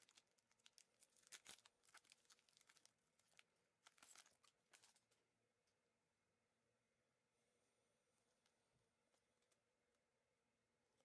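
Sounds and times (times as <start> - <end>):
plastic wrapper crinkling and tearing: 0.0 - 5.2.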